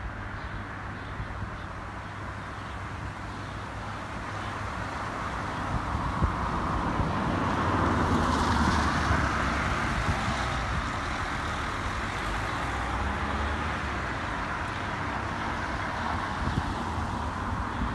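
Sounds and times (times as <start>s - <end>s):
cars passing on wet road: 4.1s - 17.9s.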